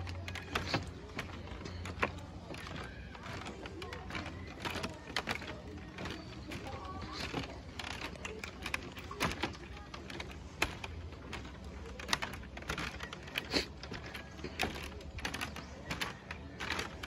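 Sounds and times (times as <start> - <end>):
bamboo slats clacking and creaking: 0.0 - 17.0.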